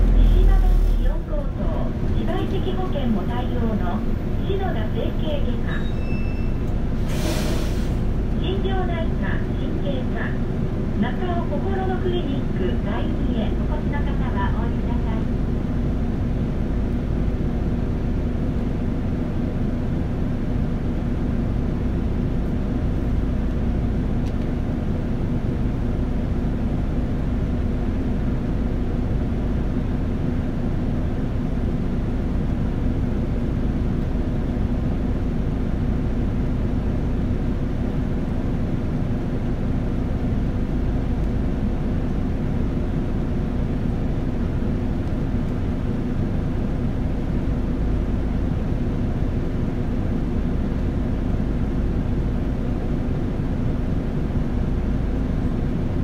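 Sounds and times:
road noise: 0.0 - 19.2
bus diesel engine hum: 0.0 - 56.0.

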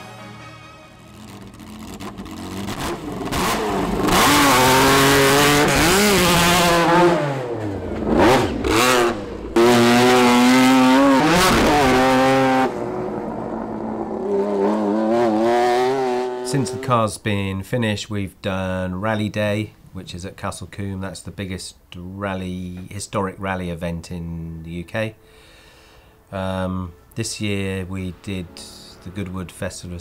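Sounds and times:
rally car engine revving: 1.0 - 17.0.

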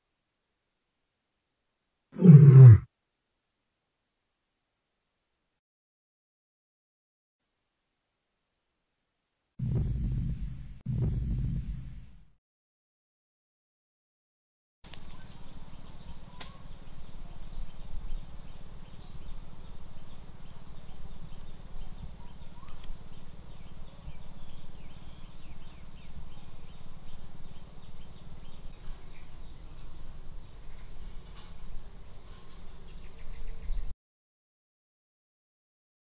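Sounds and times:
faint insect and bird ticks: 14.9 - 33.9
high steady insect buzz: 28.7 - 33.9.

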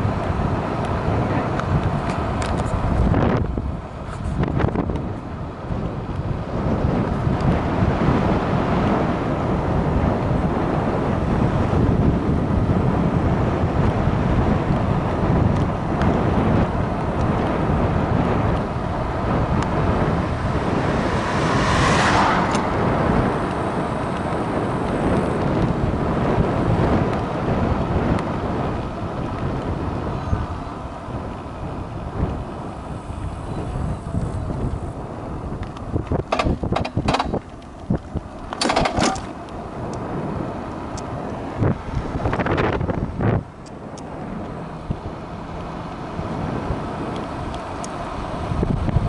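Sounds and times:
road rumble: 0.0 - 49.0
wind buffeting microphone: 0.0 - 49.0
sharp knocks and rattles: 36.2 - 37.5, 38.6 - 39.4.

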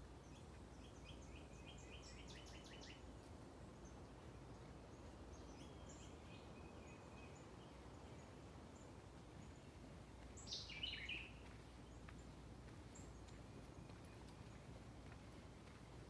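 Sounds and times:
songbird trilling: 10.5 - 11.3.

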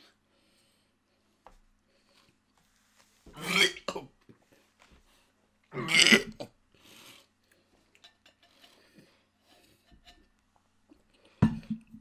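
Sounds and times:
man gagging and retching: 3.4 - 4.1, 5.7 - 6.6.

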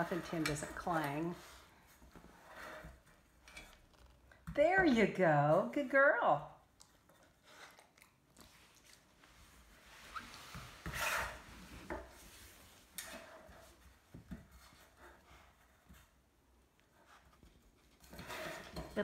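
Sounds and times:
tin scraping on hardwood floor: 0.0 - 4.2, 9.8 - 13.9, 18.0 - 19.0.

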